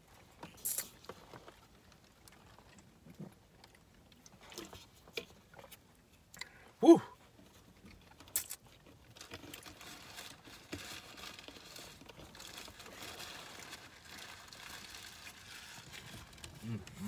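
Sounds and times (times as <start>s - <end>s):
food wrapper crinkling: 8.3s - 17.0s.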